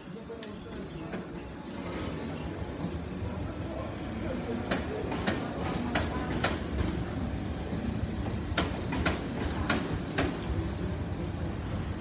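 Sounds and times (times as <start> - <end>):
electric train rumbling: 0.7 - 12.0
sharp rhythmic train clicks: 2.6 - 12.0.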